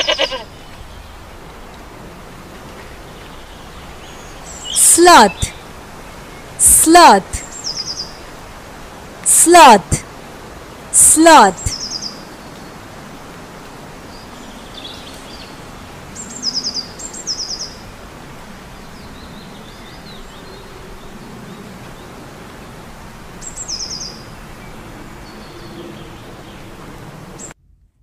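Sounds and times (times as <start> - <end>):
small birds calling: 0.0 - 1.2, 3.0 - 6.6, 11.7 - 12.9, 23.4 - 26.8
steady outdoor hiss: 0.0 - 27.6.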